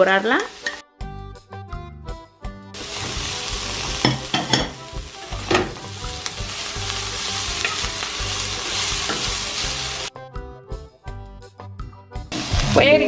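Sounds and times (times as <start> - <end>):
food sizzling in a wok: 0.0 - 0.8, 2.8 - 10.1, 12.3 - 13.0.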